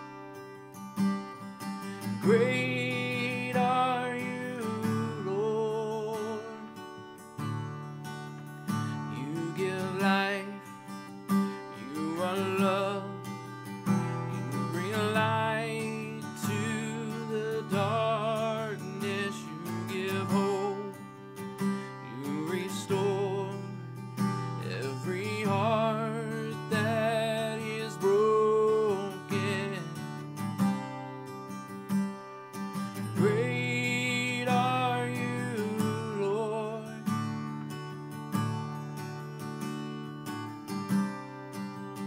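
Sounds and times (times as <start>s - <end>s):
strummed acoustic guitar: 0.0s - 42.0s
man singing worship song: 2.2s - 6.7s, 9.1s - 10.7s, 11.8s - 13.2s, 14.5s - 21.0s, 22.0s - 23.7s, 24.6s - 30.0s, 33.2s - 37.0s.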